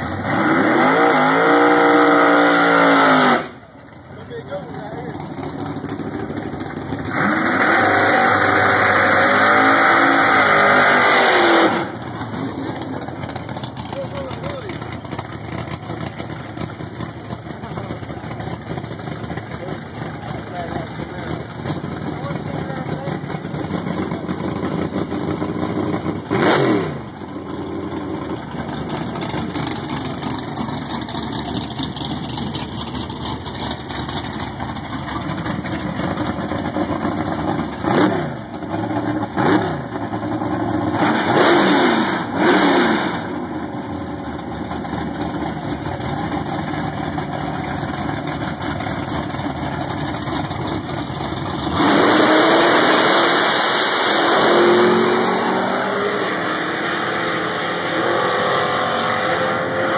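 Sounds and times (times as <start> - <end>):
race car engines idling: 0.0 - 0.6, 3.5 - 9.1, 11.7 - 41.3, 43.1 - 52.2
engine revving: 0.0 - 3.6, 4.2 - 43.6, 50.2 - 59.9.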